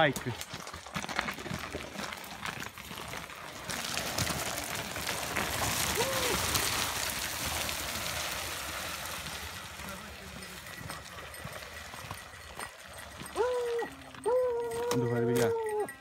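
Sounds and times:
carcass scraping over gravel: 0.0 - 11.6
footsteps on stony track: 0.0 - 16.0.

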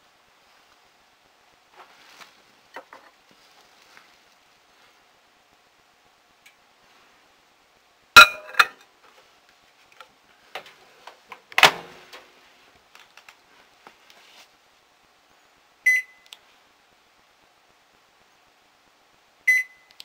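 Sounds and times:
short high microwave beep: 15.9 - 16.3, 19.5 - 20.0.

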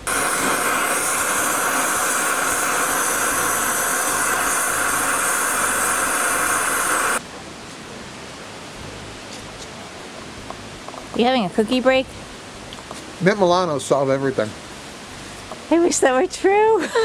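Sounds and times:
torch flame hissing: 0.0 - 7.2.

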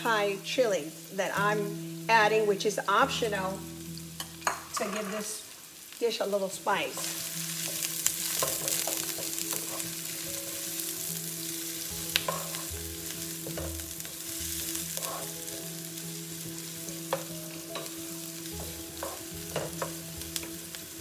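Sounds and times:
food sizzling in hot oil: 0.0 - 21.0
utensil scraping a wok: 6.9 - 15.6, 16.6 - 20.6.

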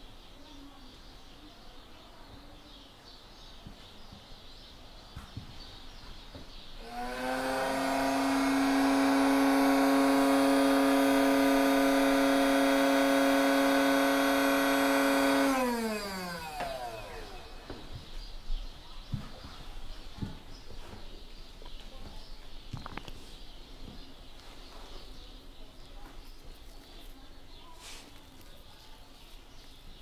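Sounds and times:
small electric motor whining: 6.8 - 18.0.

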